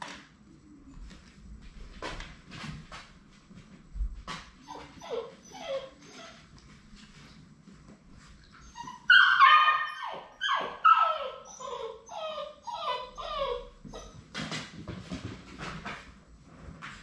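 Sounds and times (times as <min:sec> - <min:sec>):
puppies whining and yelping: 0:04.6 - 0:06.5, 0:08.6 - 0:14.2.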